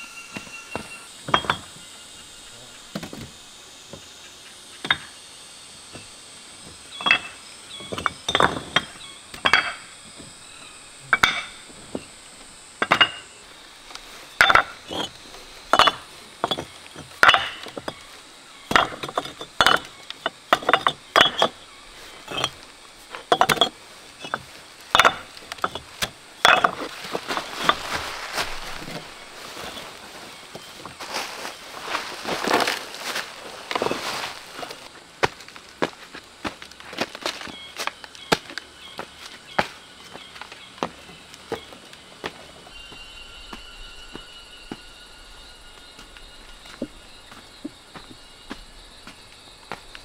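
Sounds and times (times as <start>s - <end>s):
bricks clinking together: 0.3s - 1.8s, 7.0s - 10.3s, 11.1s - 12.1s, 12.8s - 13.3s, 14.3s - 18.0s, 18.7s - 21.6s, 22.2s - 29.0s.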